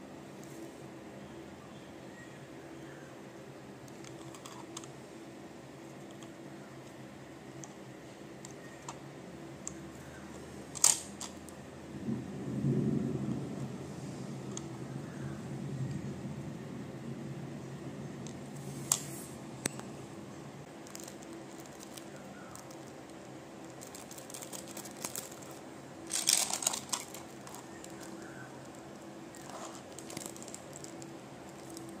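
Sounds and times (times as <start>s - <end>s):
low steady hum: 0.0s - 32.0s
plastic crinkling: 20.7s - 32.0s.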